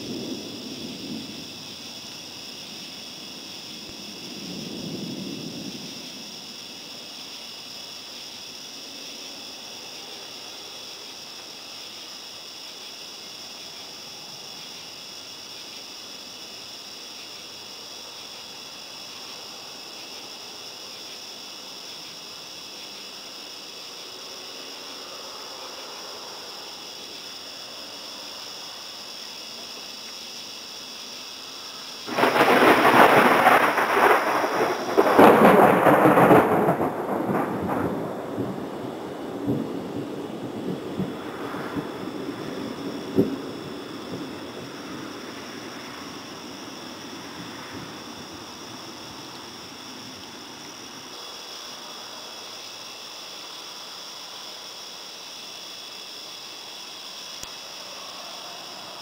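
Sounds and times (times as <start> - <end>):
thunder rolling: 0.0 - 6.5, 32.1 - 49.3
crickets trilling: 0.0 - 59.0
even hiss: 0.0 - 59.0.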